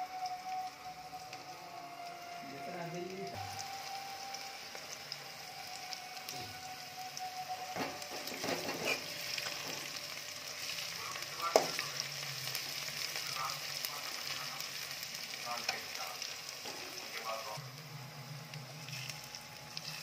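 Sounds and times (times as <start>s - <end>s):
onions sizzling in hot oil: 0.0s - 20.0s
steel spatula scraping pan: 8.2s - 9.8s.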